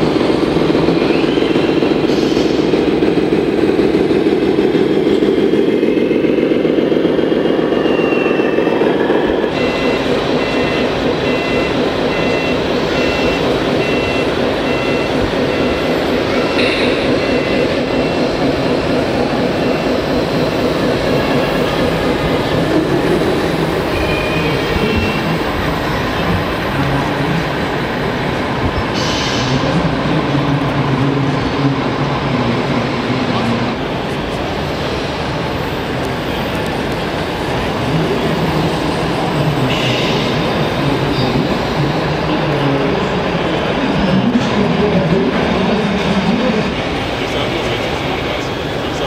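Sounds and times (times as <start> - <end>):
two-pitch reversing beeper: 7.6 - 23.1.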